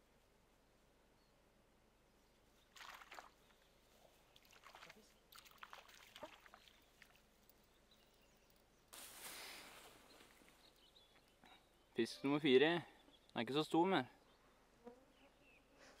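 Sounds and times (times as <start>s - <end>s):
rustling in grass: 8.9s - 10.9s.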